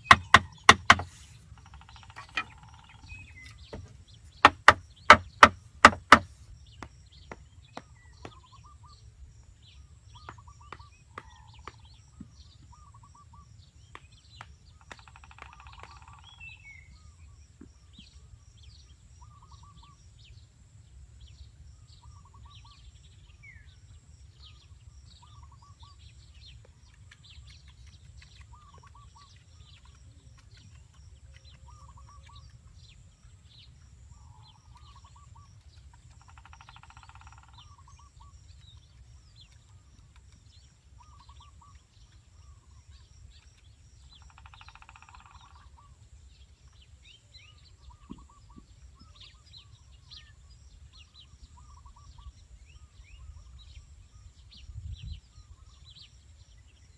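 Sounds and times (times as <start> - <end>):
bamboo stick knocking bamboo poles: 0.0 - 2.8, 3.7 - 7.4
birds chirping: 0.0 - 20.0, 21.2 - 56.9.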